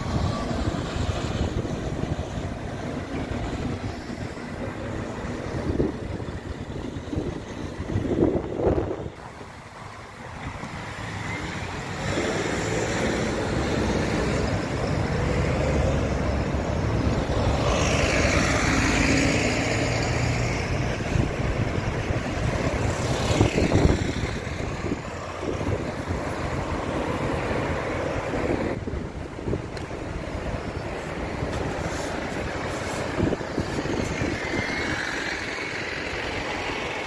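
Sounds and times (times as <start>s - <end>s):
buses and cars driving past: 0.0s - 37.0s.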